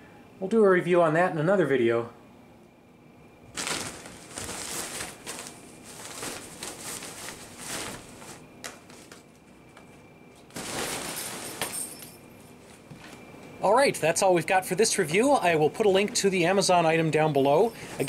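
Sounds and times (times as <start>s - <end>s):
fabric tunnel rustling: 3.5s - 9.7s, 10.4s - 12.9s.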